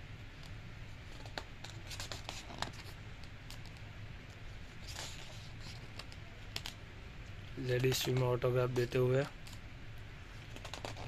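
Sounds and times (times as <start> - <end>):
book pages turning: 10.5 - 11.0.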